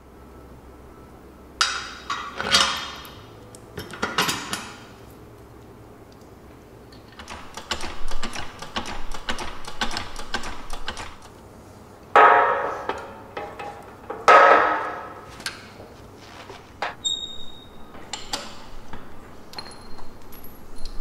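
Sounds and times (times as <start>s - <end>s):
loud metallic clanks: 12.2s - 15.3s.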